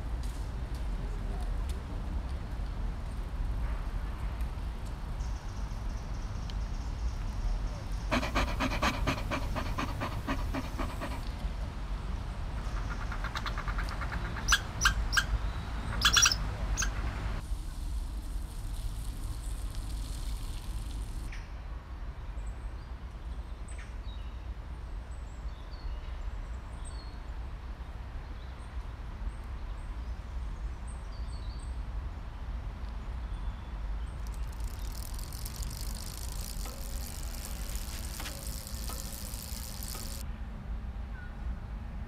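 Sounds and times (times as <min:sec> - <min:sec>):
bird chirps: 0:12.6 - 0:17.0
high hiss: 0:34.3 - 0:40.2.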